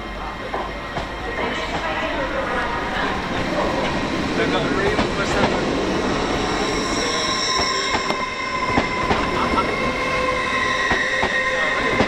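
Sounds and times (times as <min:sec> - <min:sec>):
train wheels squealing: 0:05.9 - 0:12.0.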